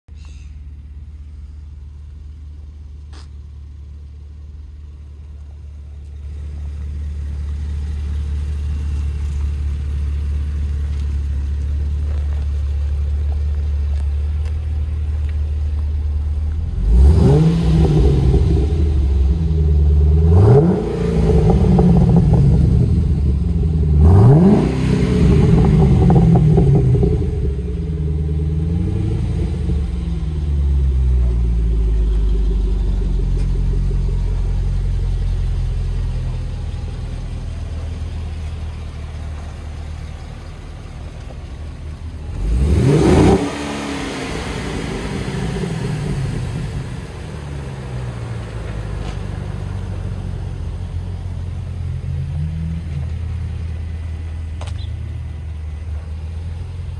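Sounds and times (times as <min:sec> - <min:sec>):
car engine idling: 0:00.1 - 0:56.9
engine revving sharply: 0:16.8 - 0:30.4, 0:42.3 - 0:48.4.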